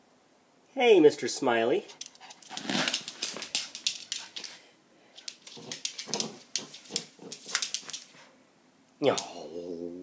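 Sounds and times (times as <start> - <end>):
dog fur and claws scuffing wooden floor: 2.0 - 4.6, 5.2 - 8.3.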